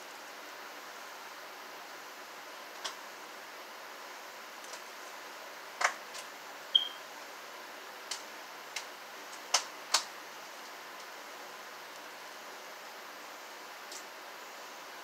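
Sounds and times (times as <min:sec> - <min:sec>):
steady hiss: 0:00.0 - 0:15.0
high beep: 0:06.8 - 0:07.0.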